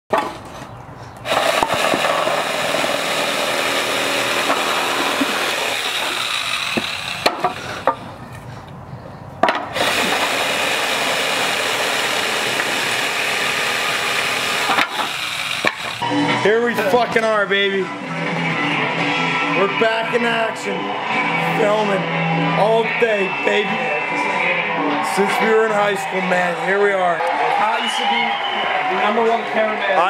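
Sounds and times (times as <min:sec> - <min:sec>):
electric jigsaw cutting wood: 0:01.3 - 0:07.9, 0:09.7 - 0:16.0.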